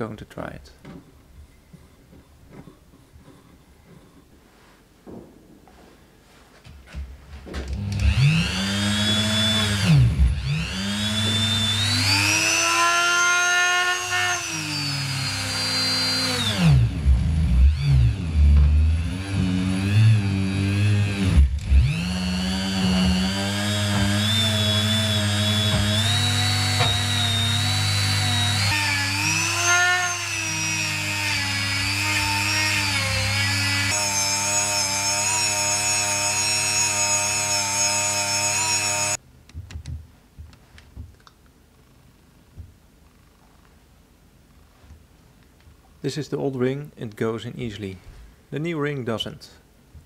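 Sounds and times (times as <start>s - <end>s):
rotary tool whining: 7.7s - 39.2s.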